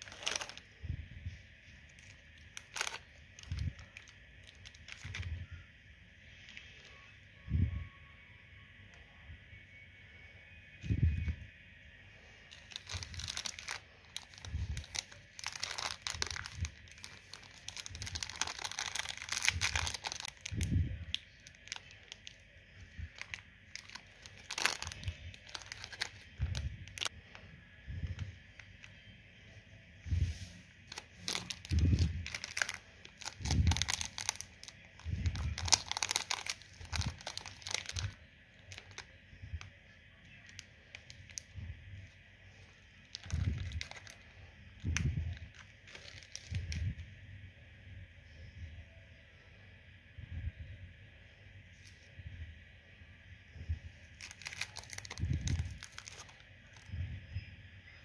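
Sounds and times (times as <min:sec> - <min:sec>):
plastic wrappers crinkling: 0:00.0 - 0:05.6, 0:12.3 - 0:27.4, 0:30.8 - 0:42.2, 0:43.0 - 0:47.0, 0:54.1 - 0:57.0.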